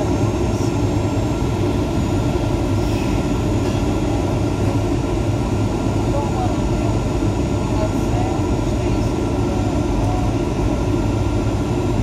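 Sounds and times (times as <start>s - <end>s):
air rushing along fuselage: 0.0s - 12.0s
jet engines droning: 0.0s - 12.0s.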